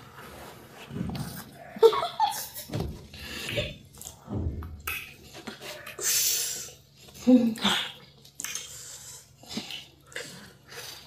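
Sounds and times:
chewing and lip-smacking: 7.9 - 11.0.

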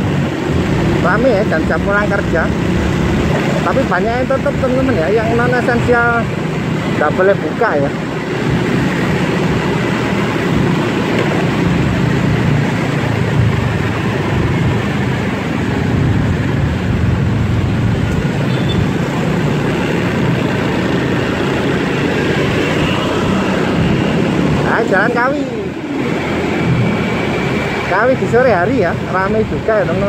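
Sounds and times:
city traffic rumble: 0.0 - 30.0.

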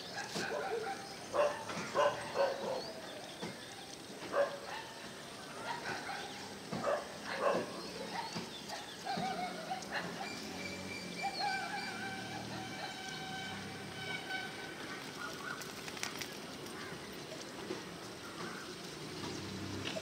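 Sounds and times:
dog barking: 0.1 - 2.9, 4.3 - 5.0, 5.6 - 10.4, 11.3 - 13.1.

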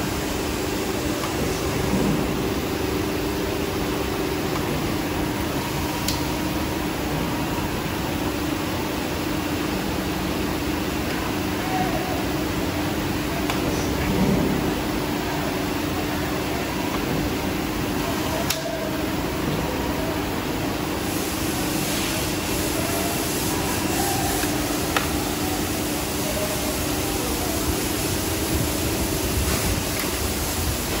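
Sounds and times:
machinery humming and rushing: 0.0 - 18.4.

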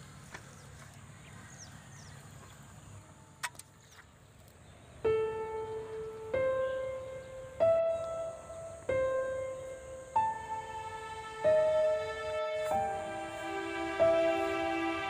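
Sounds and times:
slow piano melody: 4.9 - 15.0.

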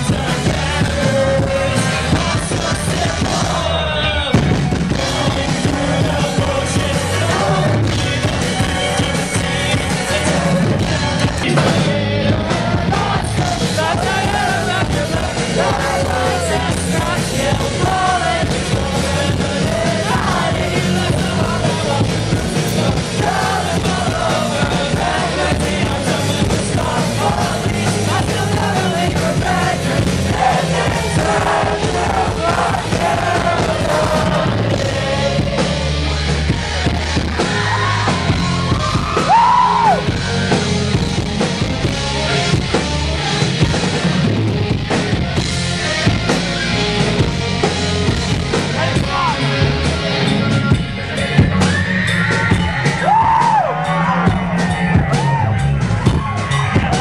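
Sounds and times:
lead vocalist singing: 0.0 - 43.8
drums: 0.0 - 57.0
electric guitars: 0.0 - 57.0
keyboard: 0.0 - 57.0.

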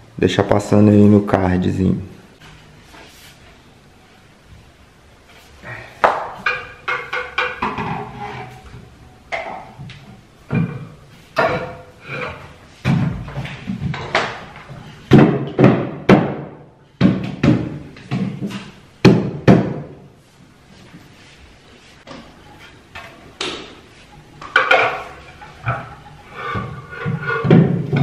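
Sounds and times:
wooden shelf board knocking: 15.1 - 19.9.

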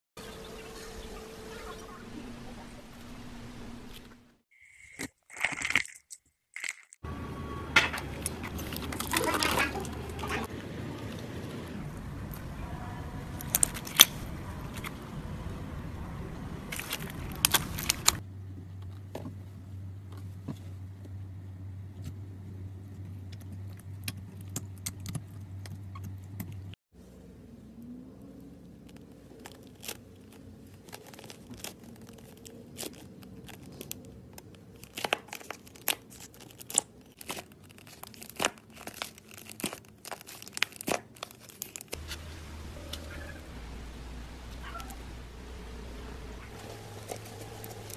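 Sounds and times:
low steady hum: 42.0 - 47.9.

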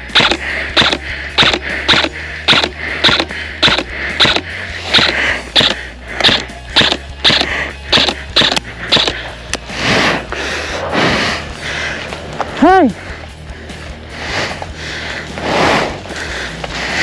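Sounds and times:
footsteps walking: 10.3 - 17.0.

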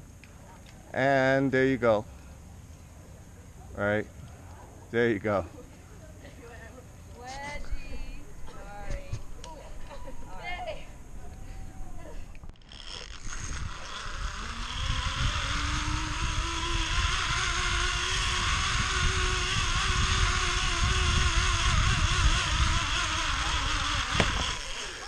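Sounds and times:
zip line pulleys whining on cable: 9.6 - 25.0
wind rushing on microphone: 13.2 - 24.8.

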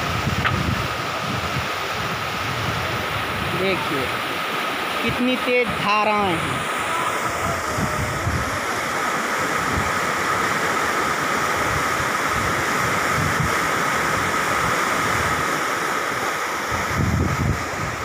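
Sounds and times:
floodwater rushing: 0.0 - 18.0.

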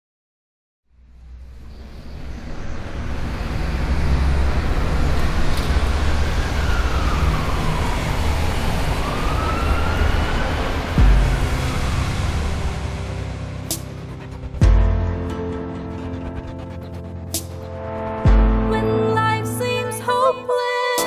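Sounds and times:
low rumble and noise: 0.9 - 9.0, 9.7 - 18.9
siren wailing: 2.1 - 17.3.

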